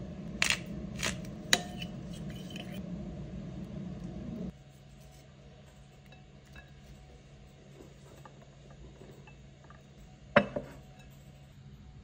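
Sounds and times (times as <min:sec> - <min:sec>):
low hum: 0:00.0 - 0:12.0
ceramic bowl knocking on wood: 0:10.4 - 0:10.8.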